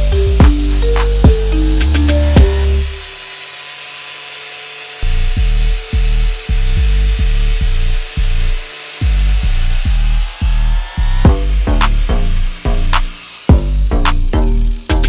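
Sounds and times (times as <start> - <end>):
music with heavy bass beat: 0.0 - 3.2, 5.4 - 7.7, 9.0 - 15.0
angle grinder cutting pipe: 0.0 - 15.0.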